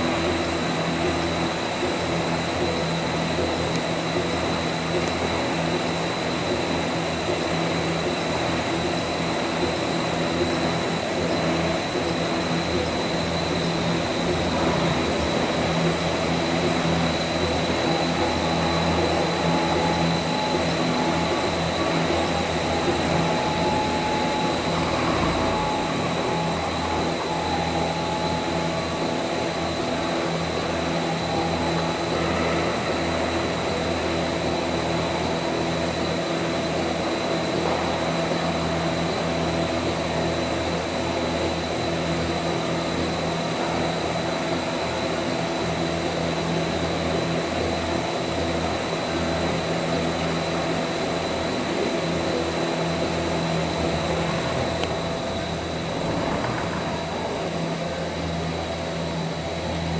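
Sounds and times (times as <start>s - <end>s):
motor hum: 0.0s - 38.4s, 51.7s - 59.9s
whirring spinning brushes: 0.0s - 59.9s.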